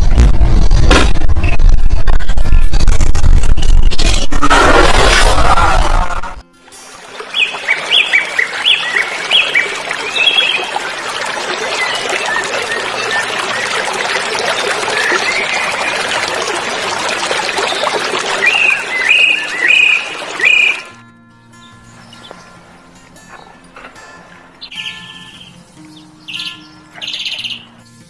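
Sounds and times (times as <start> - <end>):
shallow water splashing: 7.0 - 21.0
bird chirping: 24.6 - 27.8.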